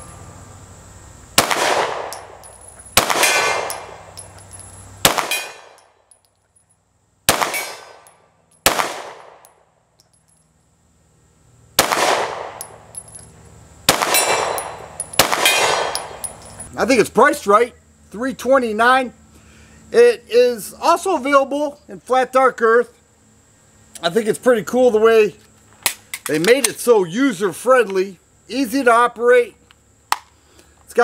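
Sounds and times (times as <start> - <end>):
pistol shots: 1.4 - 2.4, 3.0 - 4.1, 5.0 - 5.9, 7.3 - 9.5, 11.8 - 12.8, 13.9 - 16.3.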